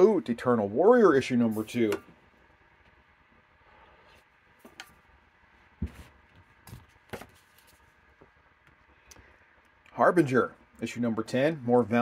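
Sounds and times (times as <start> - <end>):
paper rustling: 5.8 - 8.0.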